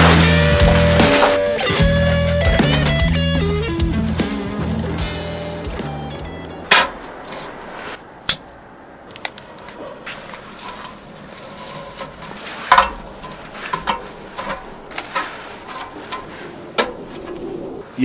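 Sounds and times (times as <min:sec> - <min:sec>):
camping gear knocking and clinking: 0:00.0 - 0:03.5, 0:06.6 - 0:07.6, 0:09.1 - 0:17.4.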